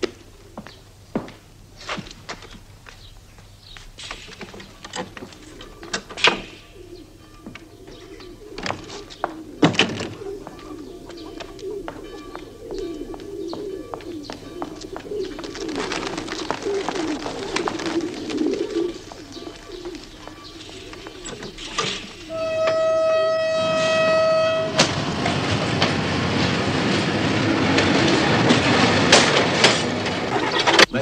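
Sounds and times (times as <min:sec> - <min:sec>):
pigeons cooing: 0:04.4 - 0:24.6.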